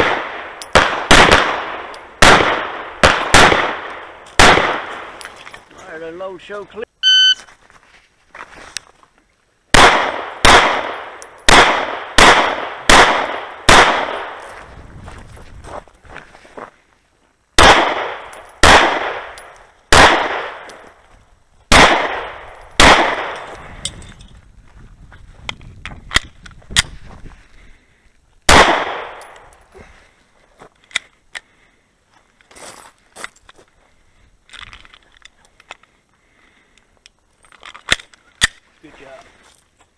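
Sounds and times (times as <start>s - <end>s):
pistol shots echoing: 0.0s - 5.2s, 9.7s - 14.4s, 17.6s - 20.8s, 21.7s - 23.5s, 28.5s - 29.4s.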